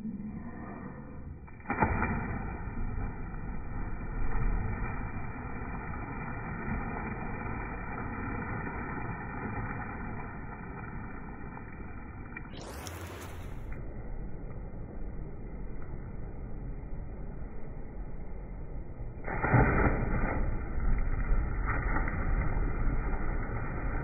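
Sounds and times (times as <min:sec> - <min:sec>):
splash into pool: 0:01.5 - 0:11.6, 0:19.2 - 0:24.0.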